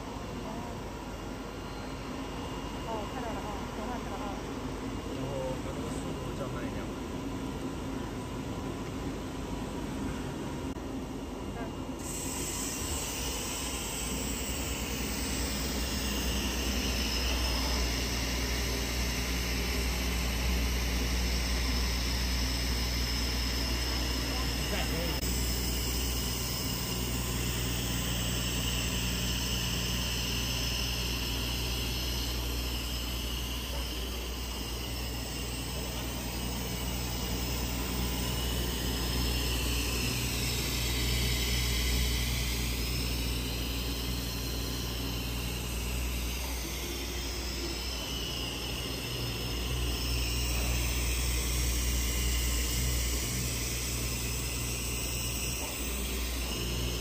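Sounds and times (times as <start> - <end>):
cutting machine hum: 11.9 - 57.0
cutting head whine: 12.0 - 57.0.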